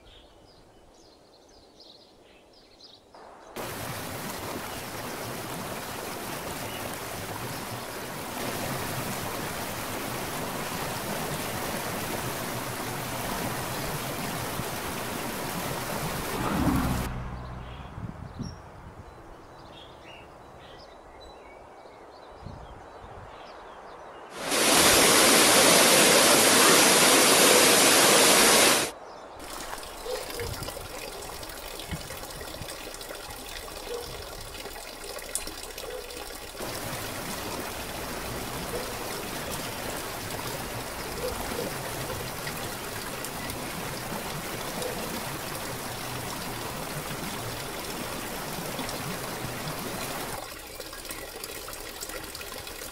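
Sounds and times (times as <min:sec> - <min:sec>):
water rushing: 0:03.2 - 0:17.4, 0:24.3 - 0:52.9
trickling stream with splashes: 0:03.5 - 0:17.7, 0:24.3 - 0:52.9
small waterfall splashing into pool: 0:03.6 - 0:17.1, 0:24.3 - 0:52.9.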